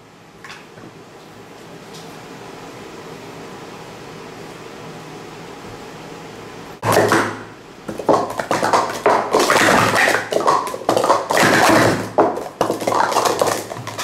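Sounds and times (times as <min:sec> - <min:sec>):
plastic cups clacking: 0:06.8 - 0:14.0.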